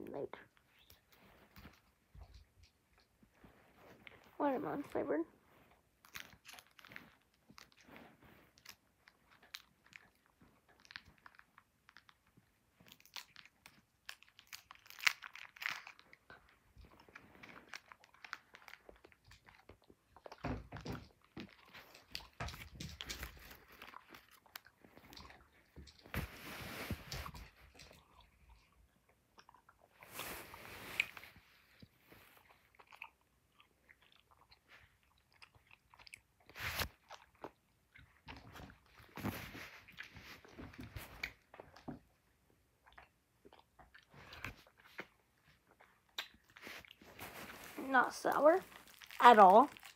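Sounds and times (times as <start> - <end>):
chewing candy close up: 6.0 - 7.9, 8.5 - 20.5, 21.1 - 26.1, 32.4 - 40.1, 42.6 - 47.4, 48.6 - 49.9.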